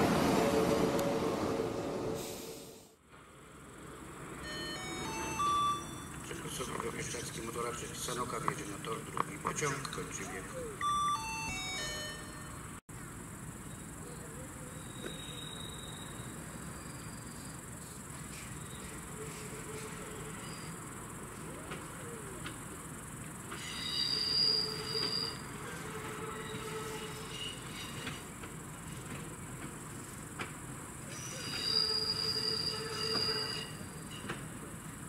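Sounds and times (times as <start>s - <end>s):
distant train approaching: 0.0s - 35.0s
crickets chirping: 3.2s - 35.0s
brief high squeal: 23.6s - 25.4s, 31.2s - 34.3s.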